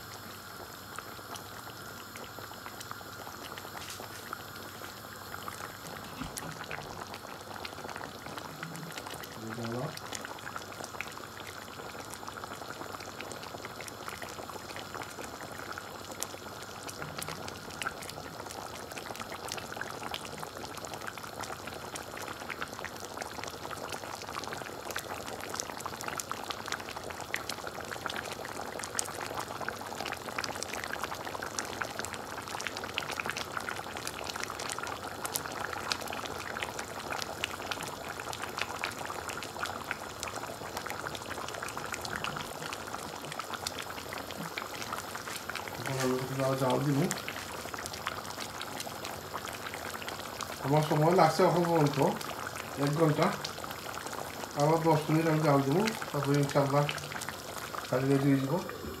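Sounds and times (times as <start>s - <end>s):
curry bubbling in a pan: 0.0s - 59.0s.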